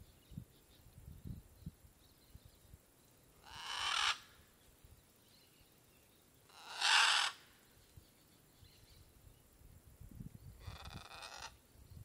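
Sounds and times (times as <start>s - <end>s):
macaw squawks: 3.4s - 4.3s, 6.5s - 7.4s.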